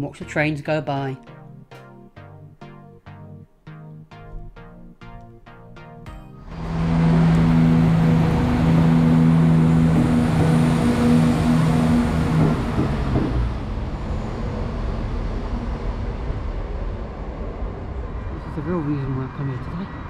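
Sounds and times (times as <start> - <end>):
train diesel engines: 6.6 - 20.0
train wheels rumbling on track: 6.7 - 18.2.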